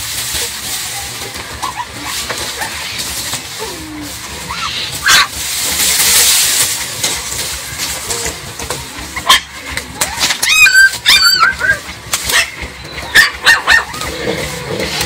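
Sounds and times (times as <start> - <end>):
dry grass rustling: 0.0 - 15.0
puppy yelp: 4.5 - 5.3, 10.4 - 14.1
puppies whimpering: 10.1 - 14.2.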